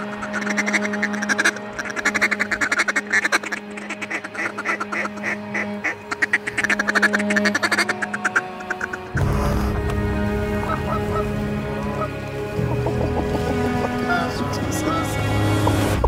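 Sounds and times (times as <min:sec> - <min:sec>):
duck call quacks: 0:00.0 - 0:09.8, 0:10.6 - 0:12.1
steady low drone: 0:04.8 - 0:16.0.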